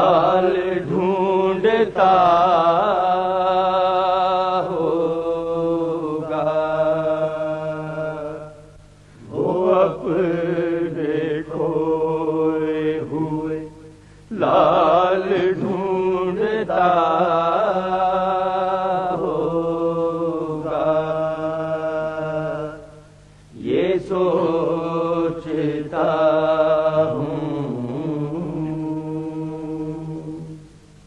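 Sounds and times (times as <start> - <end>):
men chanting: 0.0 - 8.6, 9.3 - 13.7, 14.3 - 22.9, 23.6 - 30.4.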